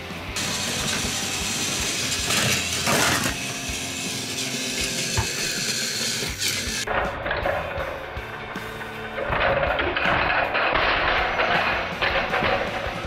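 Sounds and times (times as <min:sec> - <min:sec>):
toy train motor whirring: 0:00.4 - 0:06.9.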